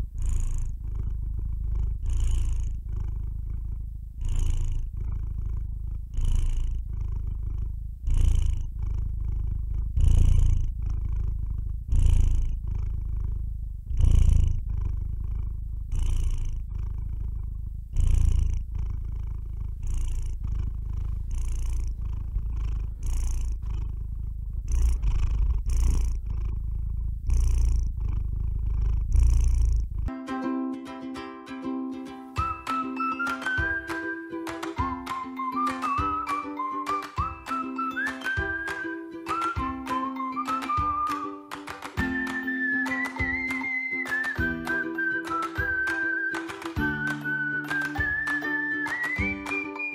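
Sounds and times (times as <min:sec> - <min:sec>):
cat purring: 0:00.0 - 0:30.1, 0:31.9 - 0:49.9
ukulele music: 0:30.1 - 0:49.9.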